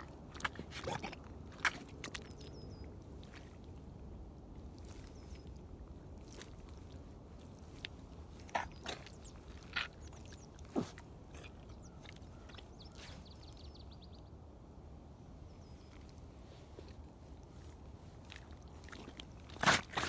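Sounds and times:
rubber boots squelching in mud: 0.0 - 13.2, 15.9 - 20.0
wet shuffling: 4.6 - 13.3, 15.9 - 20.0.

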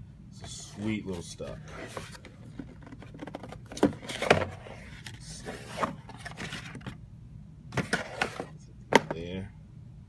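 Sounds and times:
cardboard box scraping on table: 0.5 - 6.8.

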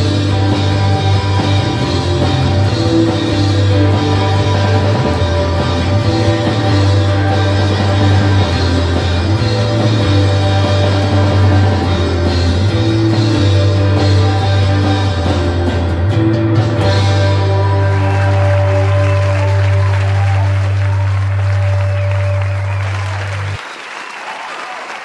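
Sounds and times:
bass guitar notes: 0.0 - 23.6
electric guitar: 0.0 - 23.6
drums: 0.0 - 24.2.

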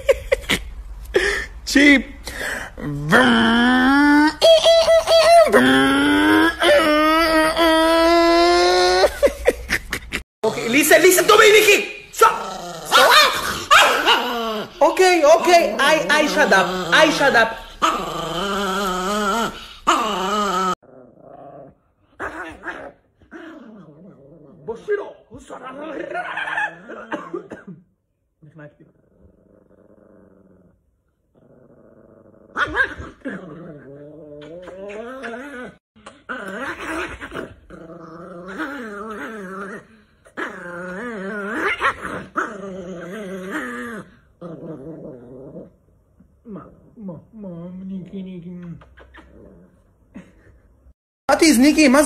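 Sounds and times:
small dog growling: 2.6 - 4.4, 12.3 - 24.9, 28.8 - 45.8, 46.4 - 50.5.

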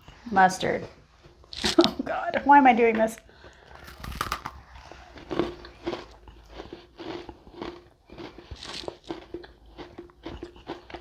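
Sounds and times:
person chewing cookie crunches: 3.4 - 11.0.

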